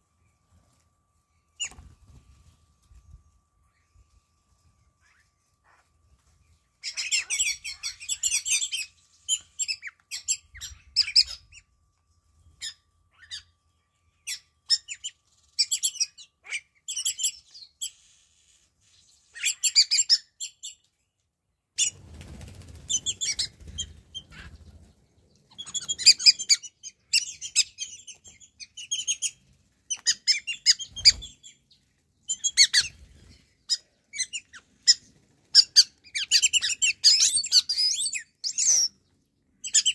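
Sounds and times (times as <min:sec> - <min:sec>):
starlings chattering calls: 0:06.8 - 0:11.6.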